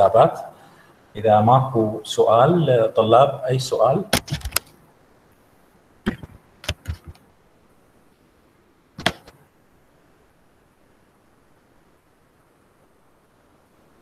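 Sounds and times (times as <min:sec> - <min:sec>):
faint room hiss: 0:00.0 - 0:14.0
device handling knocks and clicks: 0:04.1 - 0:04.7, 0:06.1 - 0:07.2, 0:09.0 - 0:09.4.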